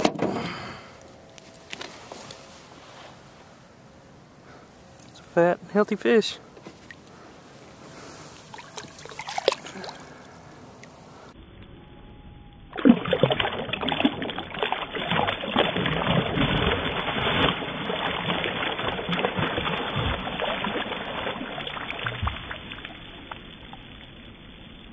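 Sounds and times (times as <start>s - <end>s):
fish splashing in water: 7.8s - 11.4s, 12.7s - 23.4s.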